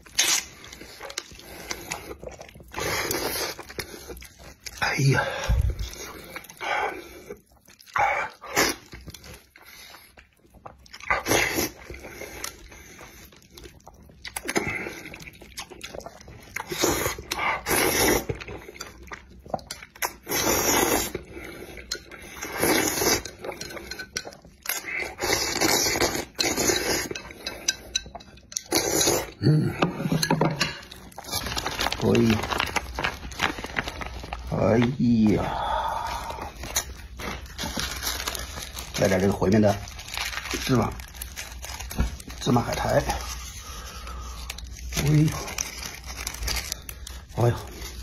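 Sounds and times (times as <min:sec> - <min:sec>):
chewing and mouth noises: 0:00.0 - 0:29.4.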